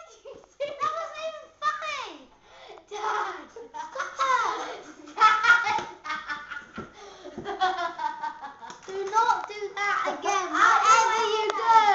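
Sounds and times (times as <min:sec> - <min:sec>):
children laughing and giggling: 0:00.0 - 0:00.9, 0:02.8 - 0:09.2
child talking: 0:00.0 - 0:02.3, 0:02.9 - 0:04.8, 0:08.9 - 0:11.9.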